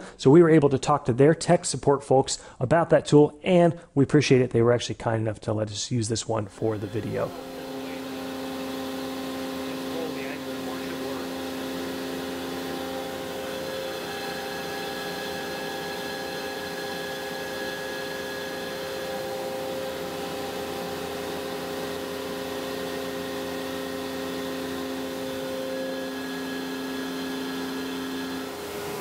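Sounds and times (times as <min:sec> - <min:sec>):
machine spindle humming: 0:06.6 - 0:29.0
shop vacuum hissing: 0:06.6 - 0:29.0.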